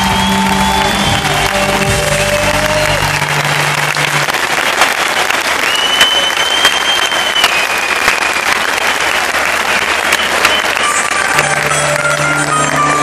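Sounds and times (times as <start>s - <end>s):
crowd whistling: 0.0s - 3.4s, 5.4s - 11.5s
audience applauding: 0.0s - 13.0s.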